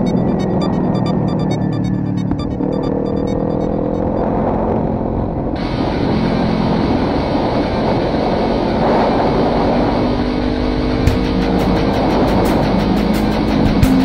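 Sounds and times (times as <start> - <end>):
wind rushing over microphone: 4.1 - 11.1
motorcycle engine running: 10.4 - 14.0.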